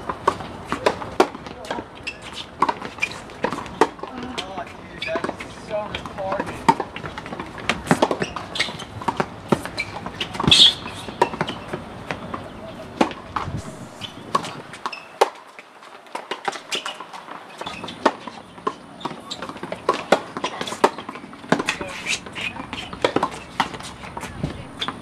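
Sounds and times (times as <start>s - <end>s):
balls bouncing on hard court: 0.0s - 15.4s, 16.1s - 25.0s
tennis balls struck by rackets: 0.0s - 25.0s
high squeal: 9.8s - 11.8s, 13.6s - 15.2s.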